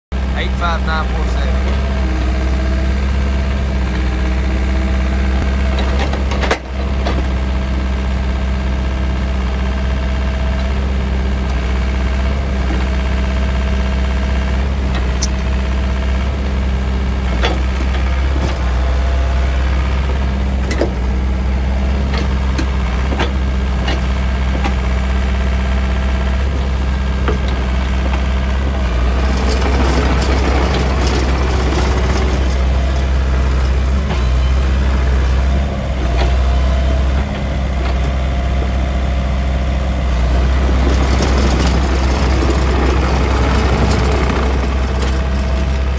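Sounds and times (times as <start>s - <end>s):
excavator diesel engine running: 0.1s - 45.9s.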